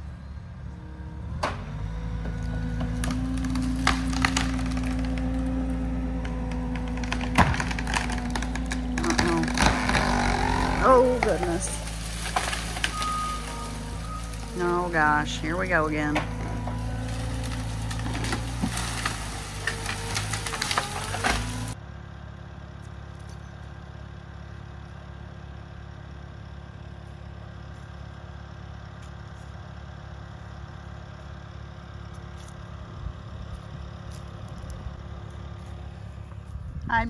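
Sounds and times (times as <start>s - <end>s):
engine running loud: 0.0s - 37.0s
sharp cracks: 2.8s - 14.5s, 16.2s - 21.8s.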